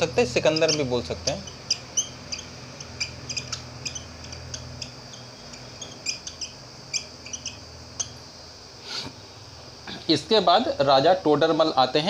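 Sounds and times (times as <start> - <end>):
marker squeaking on whiteboard: 0.0 - 8.2
steady low hum: 0.0 - 12.0.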